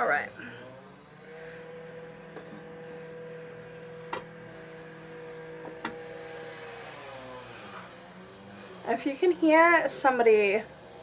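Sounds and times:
power tool whining: 0.0 - 11.0.

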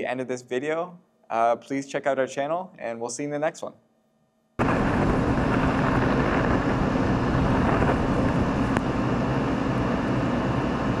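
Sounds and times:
loud steady rushing noise: 4.6 - 11.0.

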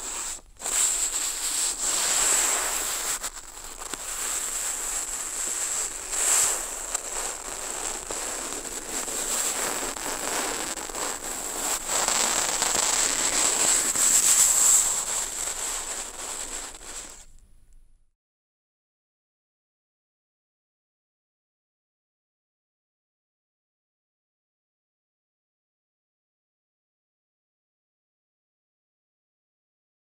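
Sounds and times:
brush scraping and crackling on paper: 0.0 - 17.3.

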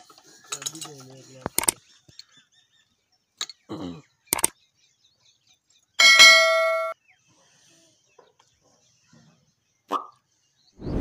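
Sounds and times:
mouse clicks: 4.3 - 4.5.

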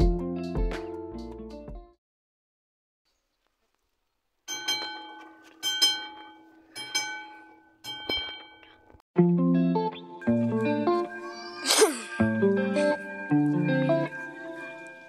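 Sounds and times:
music: 0.0 - 2.0, 9.2 - 15.0
bell ringing: 4.5 - 8.9, 10.2 - 15.0.

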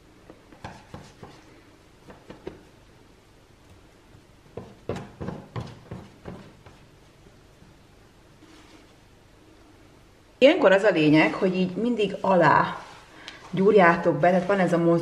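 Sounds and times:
spatula tapping and scraping: 0.2 - 2.7, 4.4 - 6.9
hands patting sticky dough: 0.2 - 2.8, 3.6 - 7.1.

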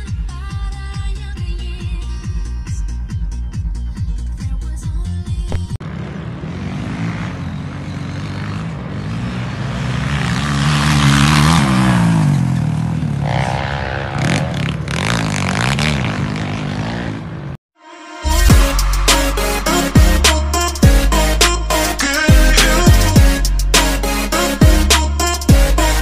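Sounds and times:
music: 0.0 - 5.8, 17.8 - 26.0
dirt bike engines revving: 5.8 - 17.6.

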